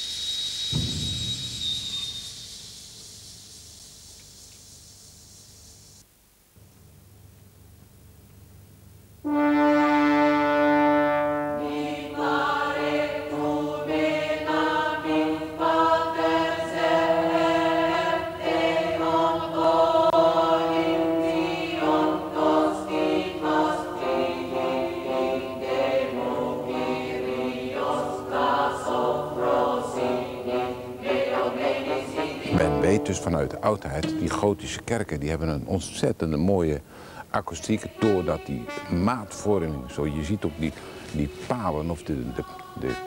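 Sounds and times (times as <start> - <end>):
choir singing sustained chords: 9.2 - 36.4, 37.3 - 43.0.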